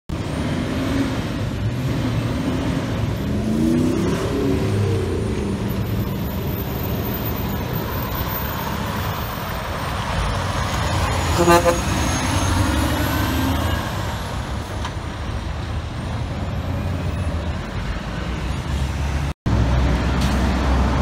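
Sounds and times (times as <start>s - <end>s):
truck engine accelerating: 0.1s - 21.0s
turbocharger whistle: 11.2s - 12.9s.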